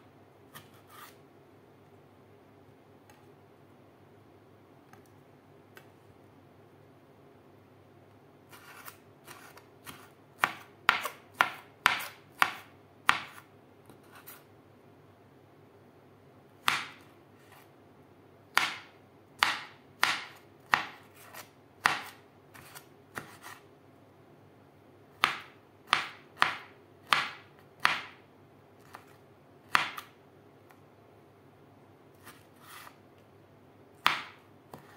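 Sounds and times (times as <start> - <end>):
knife chopping on wooden board: 8.6 - 13.4, 18.6 - 23.6, 25.2 - 28.1, 29.7 - 30.1, 34.0 - 34.9.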